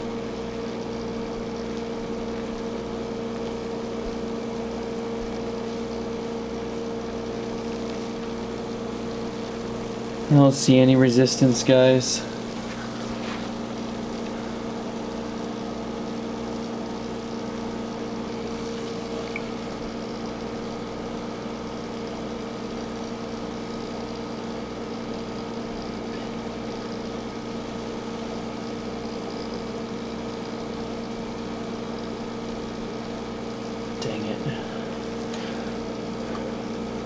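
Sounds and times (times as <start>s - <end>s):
aerated water hissing: 0.0s - 37.0s
aquarium pump hum: 0.0s - 37.0s.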